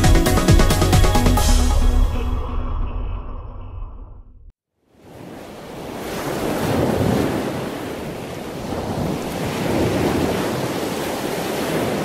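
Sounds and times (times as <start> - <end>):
water rushing: 4.9 - 12.0.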